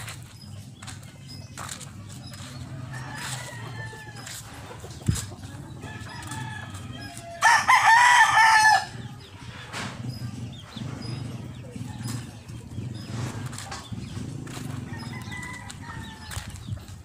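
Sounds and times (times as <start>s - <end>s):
rooster crowing: 2.9s - 4.4s, 5.8s - 9.0s, 14.9s - 16.5s.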